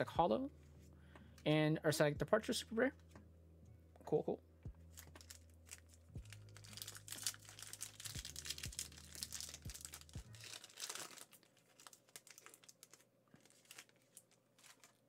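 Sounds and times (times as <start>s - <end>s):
foil wrapper crinkling and tearing: 5.0s - 15.0s.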